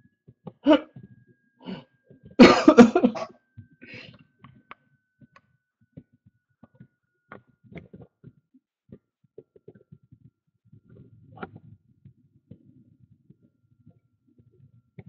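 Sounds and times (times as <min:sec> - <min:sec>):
throat-clear: 0:00.6 - 0:00.9, 0:02.4 - 0:03.3
person coughing: 0:00.7 - 0:00.9, 0:02.4 - 0:03.3.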